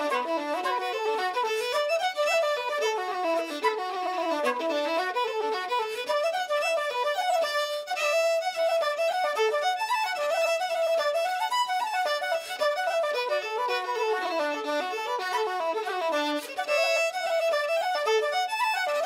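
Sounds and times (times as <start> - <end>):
fiddle playing a quick tune: 0.0 - 19.0.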